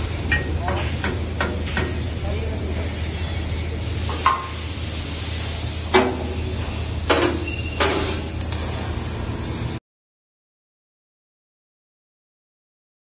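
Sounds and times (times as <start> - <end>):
low machinery hum: 0.0 - 9.8.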